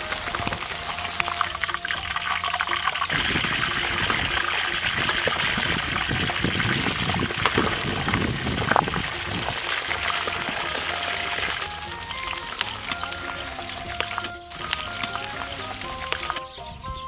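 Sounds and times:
deep-frying sizzle and bubbling: 0.0s - 17.0s.

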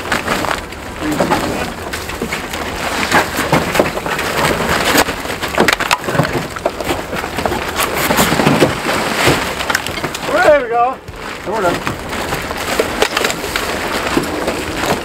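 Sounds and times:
debris rattling onto rubble: 0.0s - 15.0s
plastic tarp rustling: 0.0s - 15.0s.

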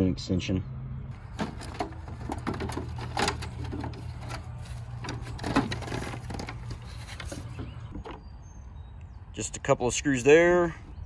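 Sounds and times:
parts being handled: 1.1s - 8.2s.

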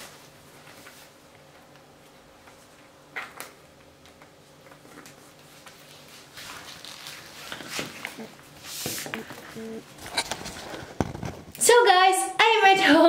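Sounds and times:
faint room hum: 0.0s - 13.0s
soft rustling: 4.9s - 11.5s.

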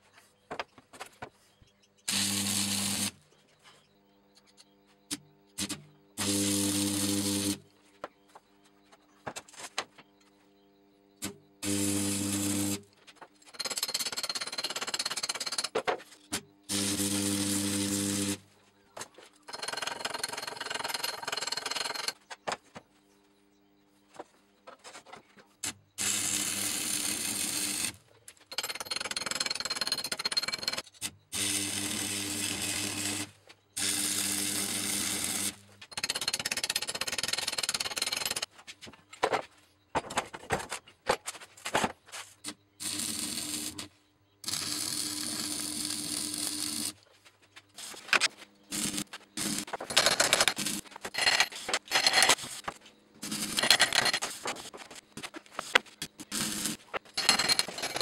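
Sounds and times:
arc welding crackling and sizzling: 2.0s - 3.2s, 5.6s - 7.6s, 11.6s - 12.9s, 16.7s - 18.4s, 42.8s - 47.0s, 47.8s - 49.9s, 54.2s - 57.2s.

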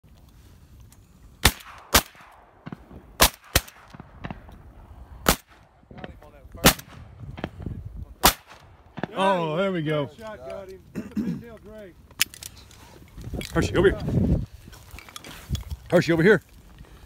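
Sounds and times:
distant faint shots: 1.4s - 4.6s
shotguns firing: 1.4s - 7.6s, 8.2s - 9.3s.

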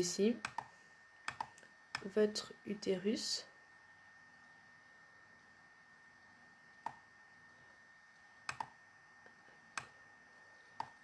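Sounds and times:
faint room noise: 0.0s - 11.0s
computer mouse clicks: 0.4s - 2.1s, 6.8s - 7.0s, 8.4s - 8.8s, 9.7s - 10.0s, 10.8s - 11.0s.

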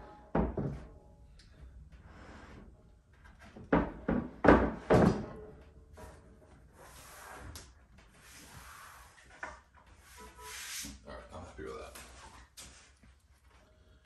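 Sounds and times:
panel sliding and rubbing: 5.9s - 11.0s.

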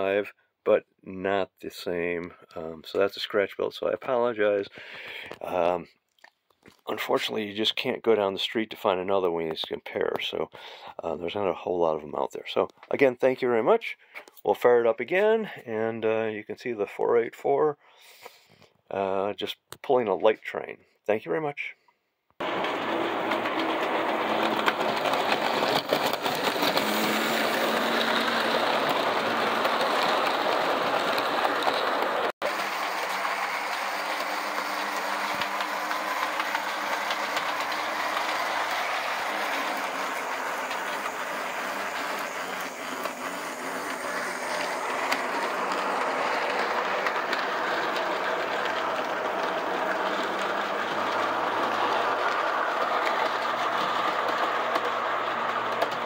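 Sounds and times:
electric motor and gear whir: 22.4s - 56.0s
wheels clicking over rails: 22.4s - 56.0s.

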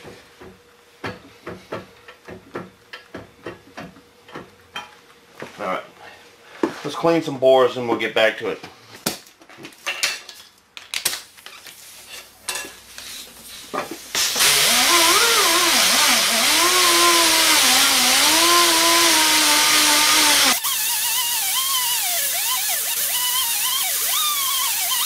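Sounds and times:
pneumatic die grinder whining: 14.2s - 25.0s.

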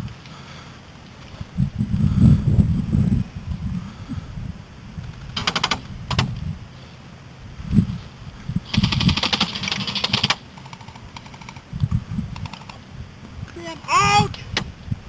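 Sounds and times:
airsoft gun bursts: 5.4s - 5.8s, 8.7s - 11.6s.

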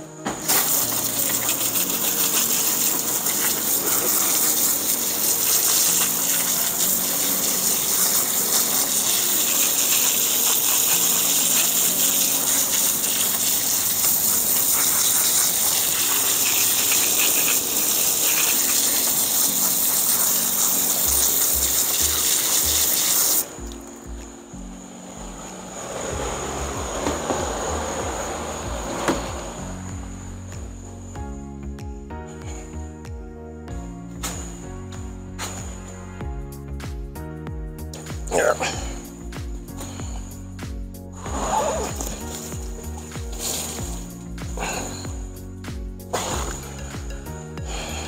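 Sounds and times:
hose spraying water on meat: 0.4s - 23.5s, 41.2s - 45.2s, 46.1s - 46.9s.

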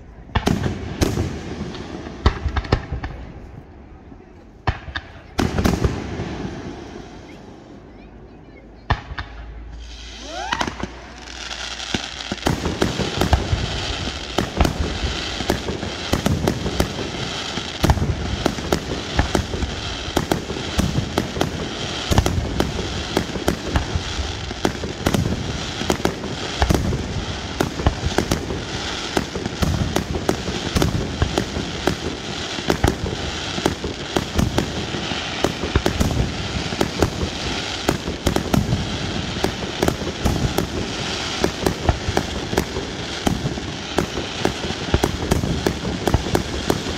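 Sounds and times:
firework bangs and crackling: 0.0s - 8.1s, 8.8s - 46.9s
rising firework whistle: 9.6s - 15.5s.

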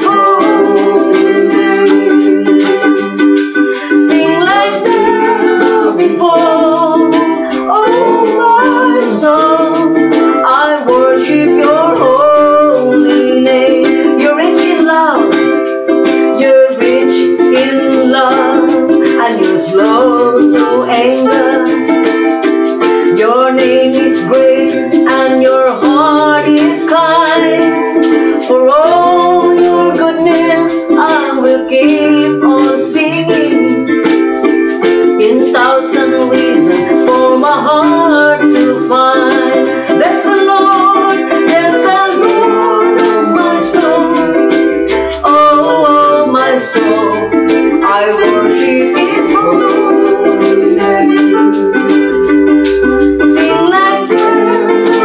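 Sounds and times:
voices singing worship song: 0.0s - 2.7s, 3.8s - 9.7s, 38.6s - 51.2s
hand-held shaker rattling: 0.0s - 55.0s
ukulele strumming: 0.0s - 55.0s.

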